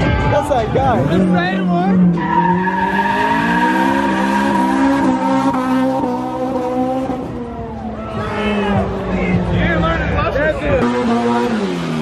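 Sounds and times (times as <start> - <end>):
car engine revving: 0.7 - 12.0.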